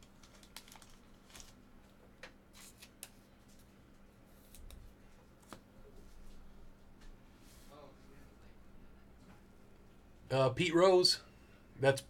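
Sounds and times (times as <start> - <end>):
trading cards clicking and rustling: 0.0 - 1.6.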